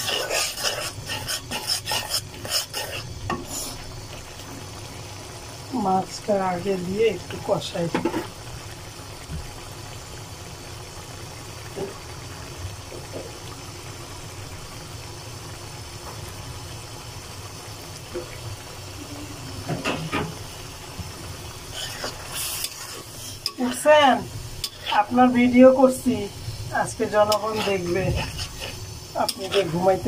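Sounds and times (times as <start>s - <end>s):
food cooking hum and hiss: 0.0s - 30.0s
metal spatula scraping and knocking: 27.2s - 29.8s.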